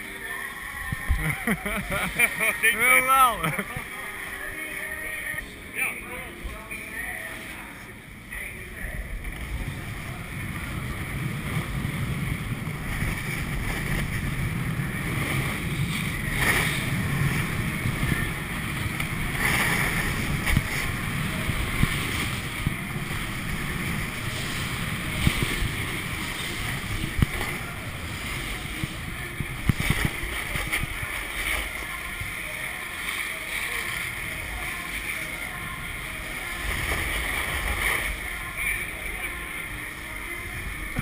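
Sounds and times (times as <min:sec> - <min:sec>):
wind buffeting microphone: 0:08.8 - 0:31.2
skis carving on snow: 0:08.8 - 0:41.0.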